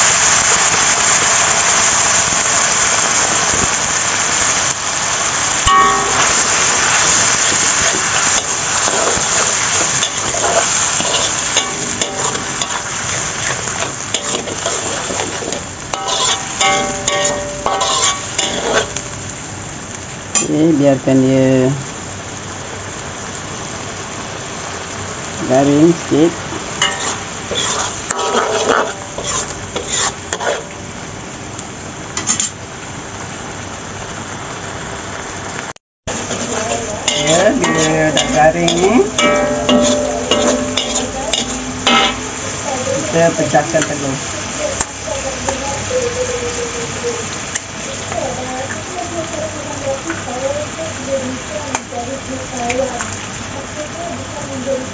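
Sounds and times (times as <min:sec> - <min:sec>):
paste sizzling in oil: 0:00.0 - 0:54.9
spatula scraping a wok: 0:05.6 - 0:19.0, 0:26.8 - 0:30.8, 0:32.2 - 0:32.6, 0:36.2 - 0:44.0.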